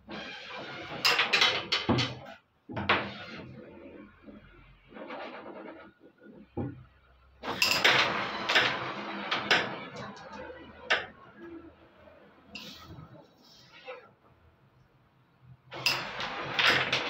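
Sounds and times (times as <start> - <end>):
carrom pieces clacking: 0.9 - 3.1, 7.5 - 11.6, 15.8 - 17.0.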